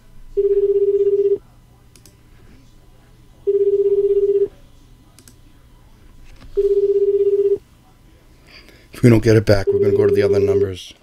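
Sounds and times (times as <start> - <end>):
phone ringback tone: 0.4 - 1.4, 3.5 - 4.5, 6.6 - 7.6, 9.6 - 10.3.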